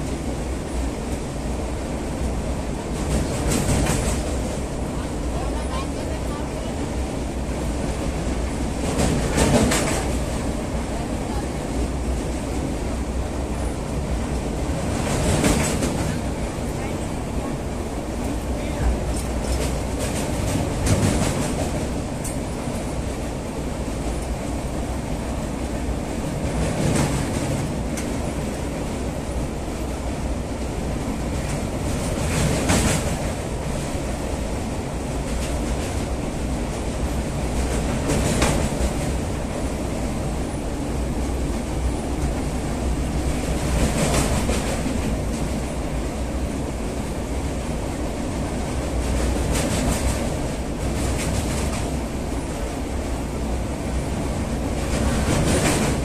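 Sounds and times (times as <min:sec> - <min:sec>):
train wheels rumbling on rails: 0:00.0 - 0:56.0
train wheel clacks: 0:02.2 - 0:06.9, 0:07.6 - 0:12.7, 0:13.5 - 0:17.1, 0:18.1 - 0:23.3, 0:25.6 - 0:29.0, 0:30.6 - 0:40.6, 0:41.2 - 0:46.0, 0:48.3 - 0:52.7, 0:54.0 - 0:56.0.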